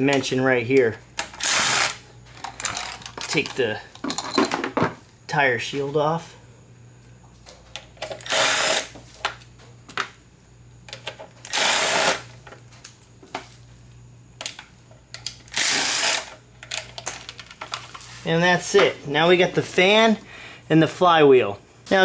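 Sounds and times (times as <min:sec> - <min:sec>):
power tool bursts: 0:01.4 - 0:02.0, 0:08.2 - 0:09.0, 0:11.5 - 0:12.3, 0:15.5 - 0:16.4.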